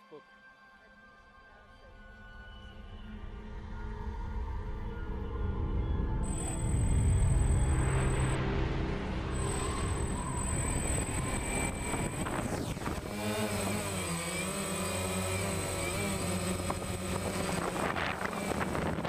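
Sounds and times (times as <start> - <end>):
quadcopter motors buzzing: 6.2 - 8.4, 9.3 - 19.0
intro music: 6.2 - 13.6.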